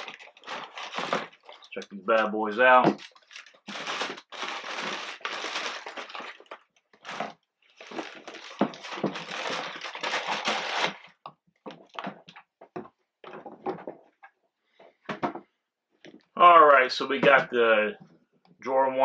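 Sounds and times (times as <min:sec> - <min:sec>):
wrapping paper rustling: 0:00.0 - 0:11.2.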